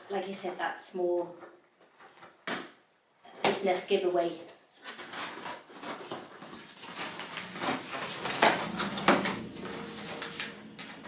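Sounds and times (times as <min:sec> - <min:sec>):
cardboard rustling and tearing: 0:04.8 - 0:11.0.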